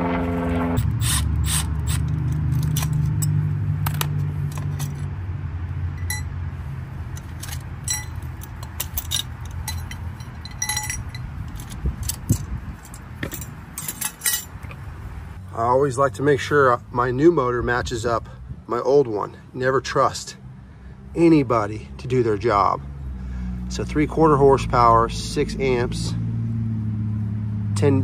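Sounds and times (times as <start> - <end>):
low drone: 0.0 - 8.1
metallic clicks of hand tools: 7.1 - 14.8.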